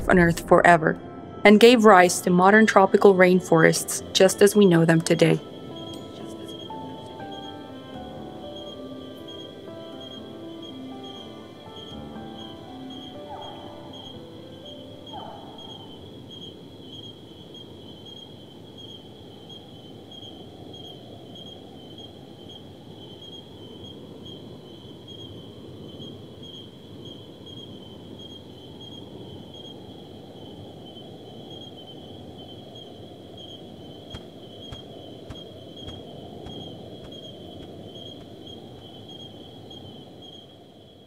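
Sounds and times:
low steady rumble: 0.0s - 5.7s
music: 0.0s - 16.5s
insect trilling: 3.6s - 41.0s.

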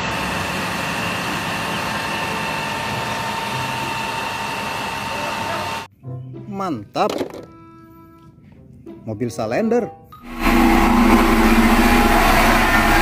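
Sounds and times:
water pump and jet rushing: 0.0s - 5.9s, 10.2s - 13.0s
steady high whine: 10.2s - 13.0s.

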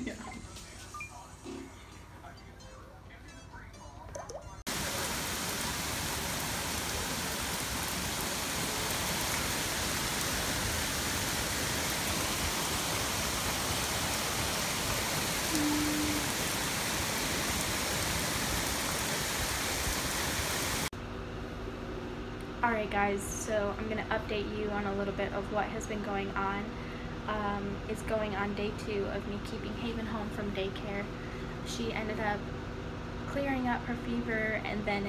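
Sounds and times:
heavy rain pouring: 4.7s - 20.9s.

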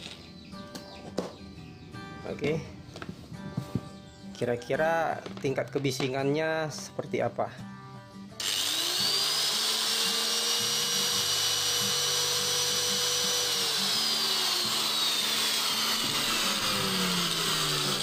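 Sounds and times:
angle grinder whining: 8.4s - 18.0s.

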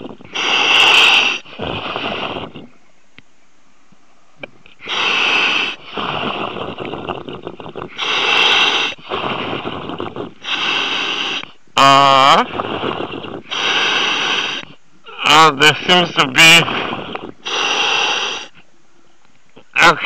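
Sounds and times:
diver breathing through a mask: 0.0s - 2.7s, 4.8s - 11.6s, 12.4s - 14.8s, 16.4s - 18.6s.

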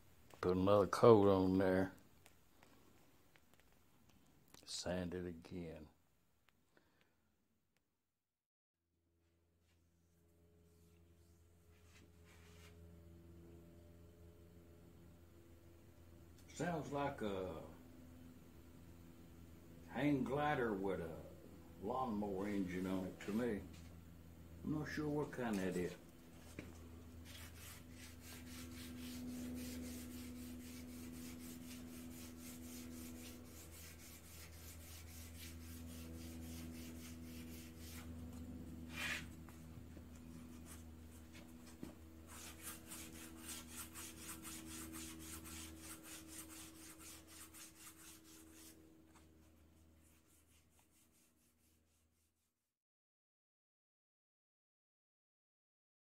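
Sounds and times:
sandpaper rubbing: 24.9s - 39.6s, 40.2s - 52.5s.

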